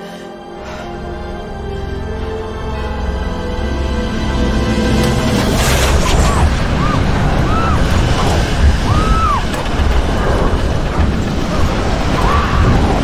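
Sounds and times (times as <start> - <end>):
heavy low rumble: 1.2 - 13.0
loud rushing wind: 5.1 - 13.0
rising and falling whistling tones: 5.6 - 10.6.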